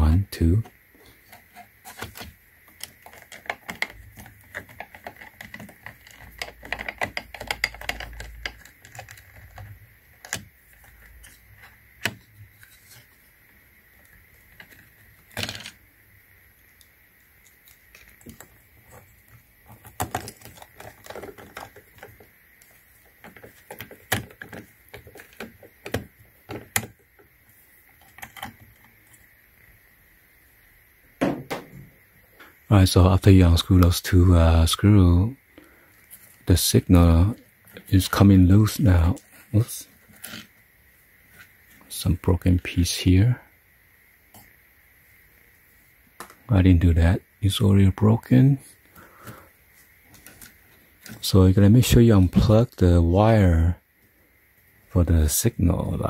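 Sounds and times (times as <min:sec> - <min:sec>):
hands handling plastic housing: 0:00.6 - 0:13.2, 0:17.4 - 0:29.2.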